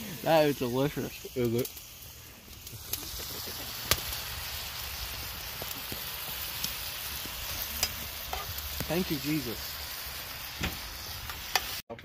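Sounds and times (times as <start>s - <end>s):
mushrooms sizzling in a pan: 0.0s - 11.8s
sharp pops: 3.8s - 4.2s.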